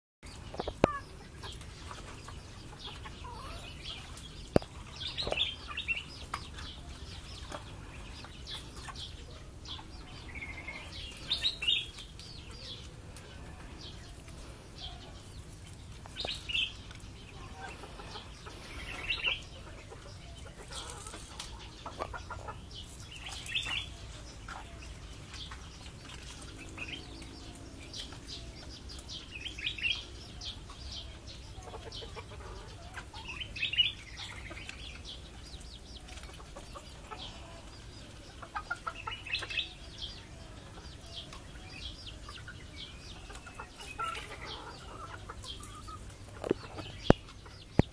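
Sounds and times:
chick peeping: 0.2s - 47.9s
hen clucking: 0.4s - 29.3s, 30.6s - 47.9s.

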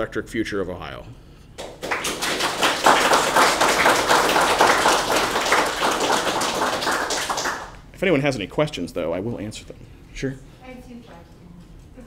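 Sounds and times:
audience applauding: 1.6s - 7.8s.

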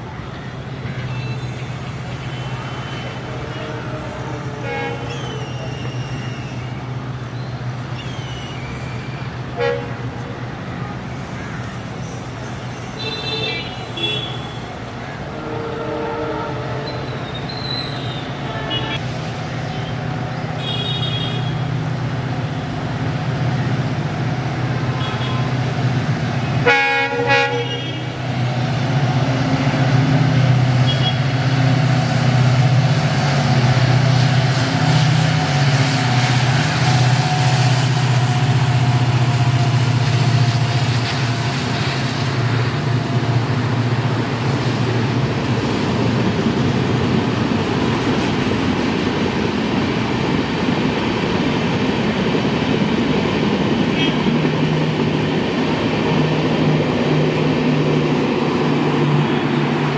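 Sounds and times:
train wheels rumbling on track: 0.0s - 59.9s
locomotive horn blast: 0.8s - 6.2s, 9.5s - 10.2s, 13.0s - 19.1s, 20.6s - 21.8s, 24.9s - 25.6s, 26.6s - 28.4s, 30.6s - 31.8s, 53.9s - 54.4s
diesel engine drone: 42.4s - 59.9s.

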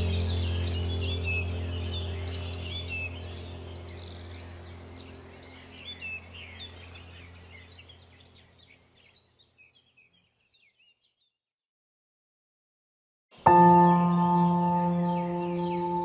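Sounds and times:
low hum: 0.0s - 8.6s, 13.5s - 16.0s
small birds chirping: 0.0s - 11.4s, 13.4s - 16.0s.

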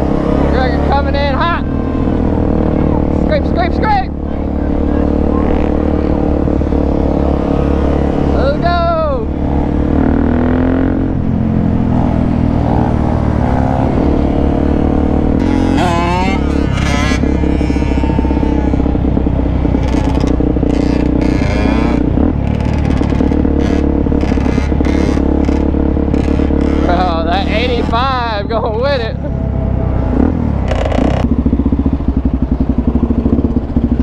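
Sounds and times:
motorcycle engine cruising: 0.0s - 34.0s
other dirt bike engines: 0.0s - 34.0s.

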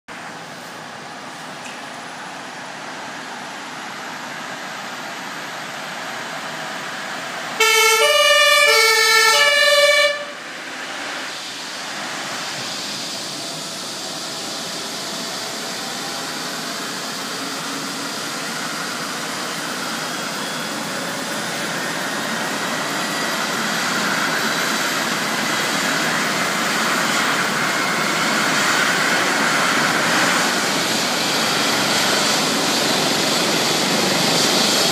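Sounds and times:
helicopter turbine engines starting: 0.1s - 34.9s
two-tone emergency siren: 7.6s - 10.7s.

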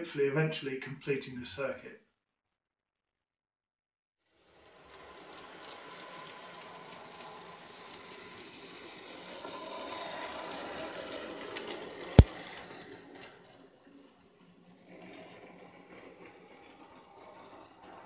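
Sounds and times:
model train rattling on track: 4.4s - 18.0s.

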